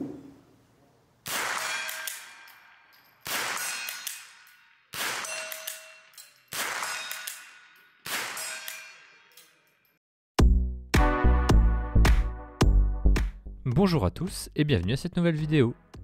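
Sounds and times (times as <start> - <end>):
rifle shots echoing: 1.2 - 2.6, 3.2 - 5.8, 6.5 - 8.7
music: 10.4 - 16.0.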